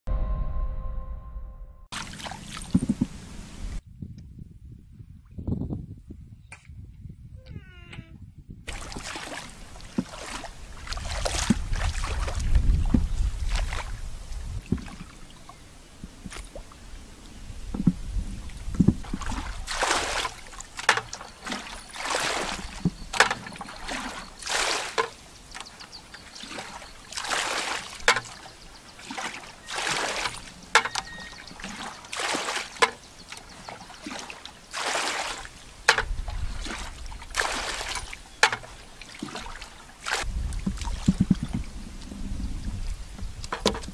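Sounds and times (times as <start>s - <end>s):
low rumble: 0.1s - 1.9s
muddy water splashing: 1.9s - 3.8s, 8.7s - 43.9s.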